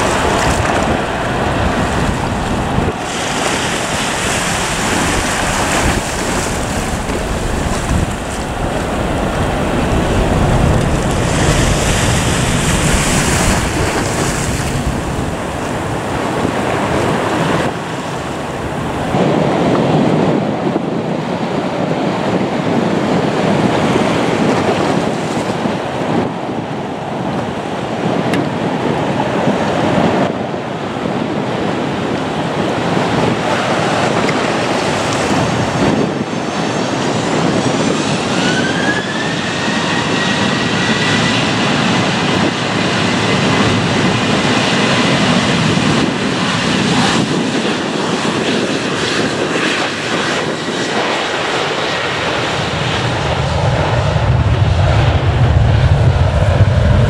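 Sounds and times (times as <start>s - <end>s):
high engine whine: 0.0s - 21.8s
airliner engines rushing: 0.0s - 57.0s.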